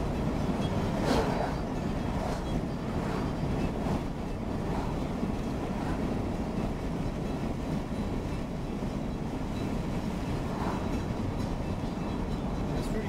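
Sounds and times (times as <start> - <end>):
road and tyre rumble in car: 0.0 - 13.0.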